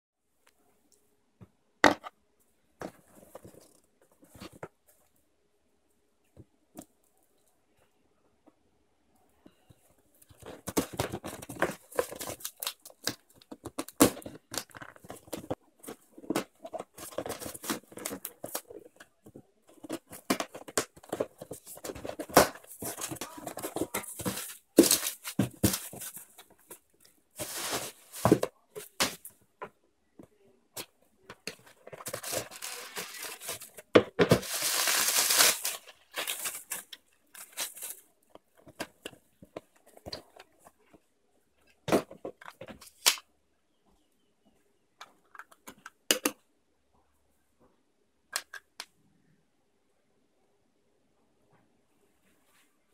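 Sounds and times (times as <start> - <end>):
bubble wrap and plastic rustling: 16.2 - 29.3, 31.5 - 38.8.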